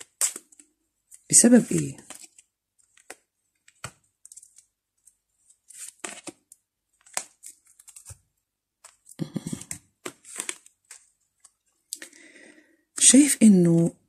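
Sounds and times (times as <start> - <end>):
cards swishing and snapping: 0.0 - 4.6, 8.8 - 11.6.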